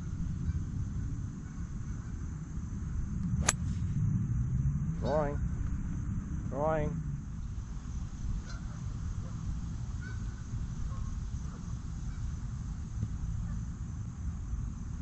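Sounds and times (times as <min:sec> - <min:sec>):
wind rumble on microphone: 0:00.0 - 0:15.0
distant bird calls: 0:07.9 - 0:12.4.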